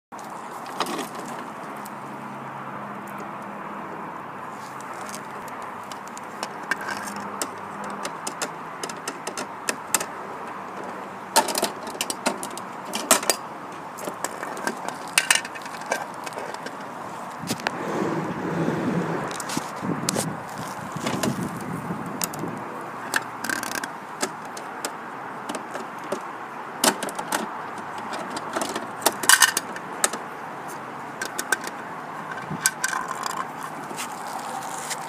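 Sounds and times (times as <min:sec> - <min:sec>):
outdoor background noise: 0:00.1 - 0:35.0
plastic toy clicks and clatters: 0:32.4 - 0:33.8.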